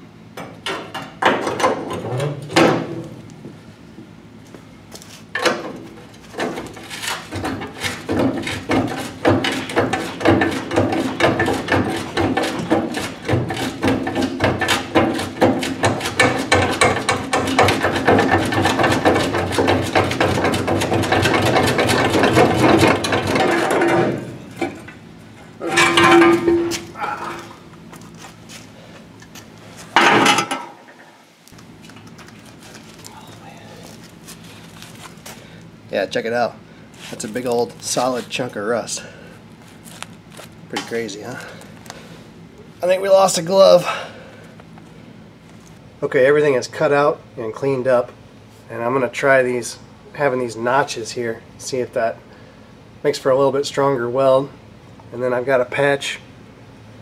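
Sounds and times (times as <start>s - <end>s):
motor hum: 2.0s - 42.9s.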